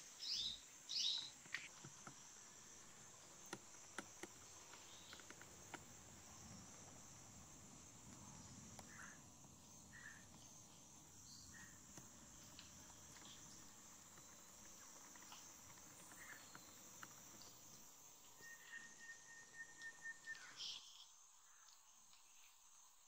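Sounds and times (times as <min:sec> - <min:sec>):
insect chorus: 0:00.0 - 0:23.0
bird chirps: 0:00.2 - 0:01.3, 0:18.3 - 0:21.1
bird whistled note: 0:18.4 - 0:20.8.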